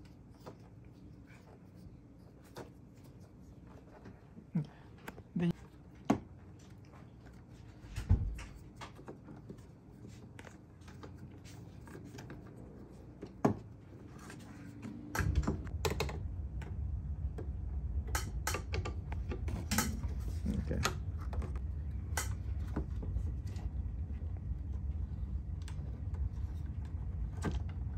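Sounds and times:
low steady rumble: 9.6s - 27.9s.

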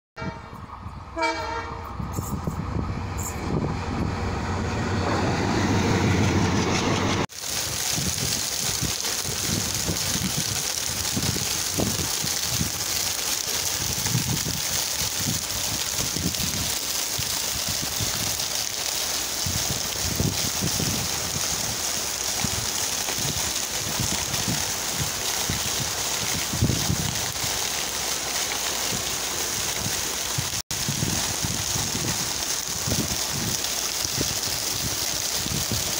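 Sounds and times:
electric train arriving: 0.2s - 7.3s
low gusts: 0.3s - 35.9s
heavy rain pouring: 5.0s - 35.9s.

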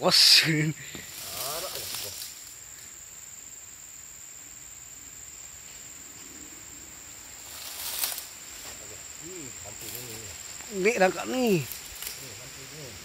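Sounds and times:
high-pitched insect drone: 0.0s - 13.0s
dry palm fronds rustling: 0.8s - 2.9s, 7.2s - 13.0s.

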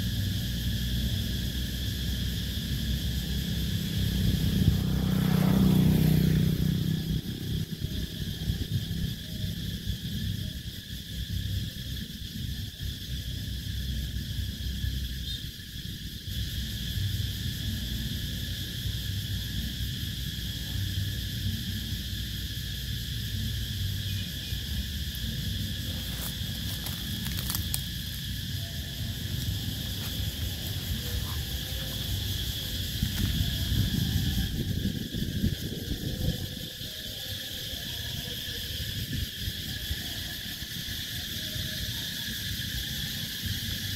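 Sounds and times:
cicadas singing: 0.0s - 43.9s.

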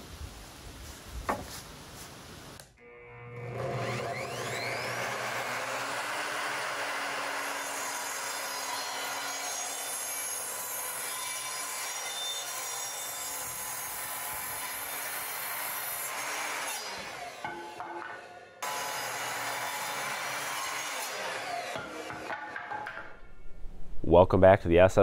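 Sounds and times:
miter saw cutting wood: 2.8s - 22.4s.

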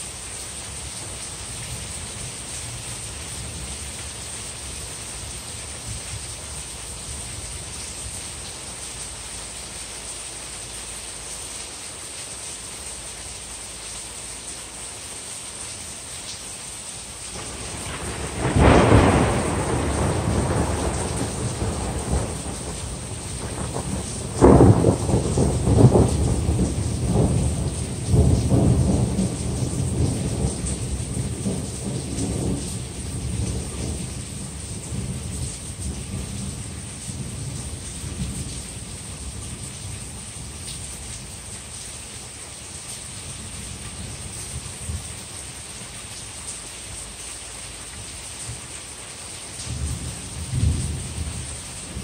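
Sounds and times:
rain hissing: 0.0s - 52.0s
thunder rumbling: 17.4s - 38.5s.

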